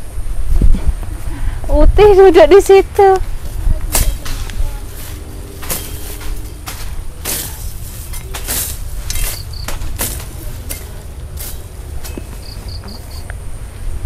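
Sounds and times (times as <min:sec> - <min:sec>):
wind on microphone: 0:00.0 - 0:07.2
rustling in dry stubble: 0:00.4 - 0:14.0.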